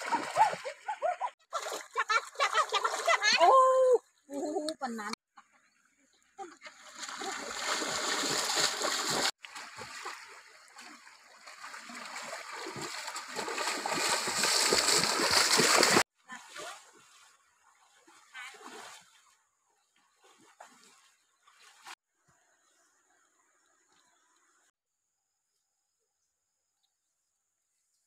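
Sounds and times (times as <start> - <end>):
people wading through river: 0.0 - 3.9, 5.5 - 22.0.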